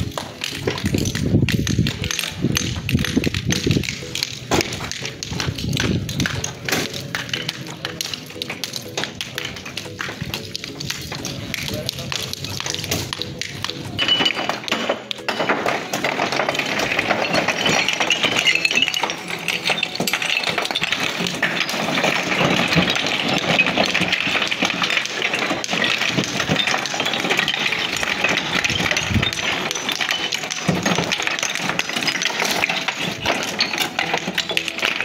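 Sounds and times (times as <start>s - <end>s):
stone slabs clattering: 0.0s - 35.0s.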